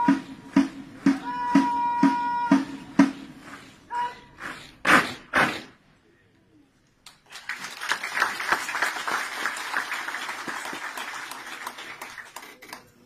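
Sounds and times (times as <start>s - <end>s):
crowd applauding: 7.1s - 13.0s.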